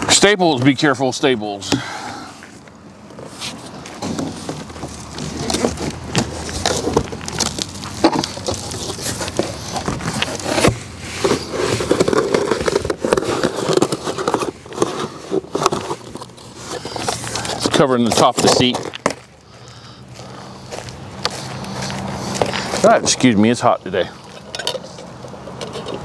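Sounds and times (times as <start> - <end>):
cardboard crackling and rustling: 3.1 - 19.5
cardboard scraping: 3.1 - 19.6.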